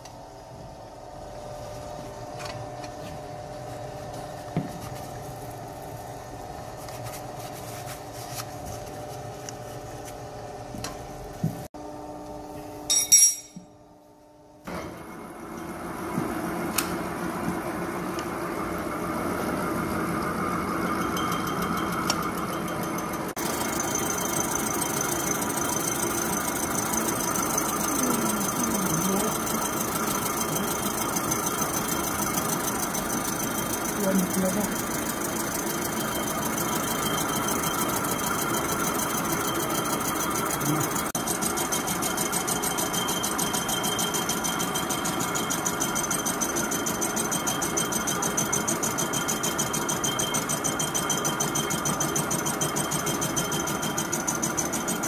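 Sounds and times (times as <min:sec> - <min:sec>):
machine hum: 0:07.5 - 0:55.0
milling machine cutting metal: 0:21.0 - 0:55.0.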